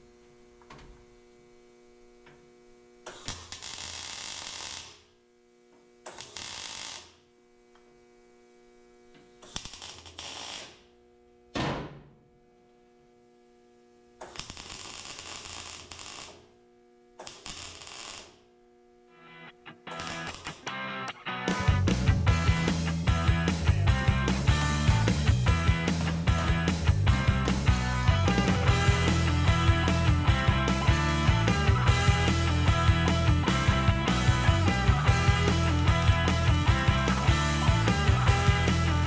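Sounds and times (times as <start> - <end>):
steady electrical hum: 0.0 - 21.3
crackling welds: 2.2 - 5.3, 6.0 - 11.1, 14.2 - 39.0.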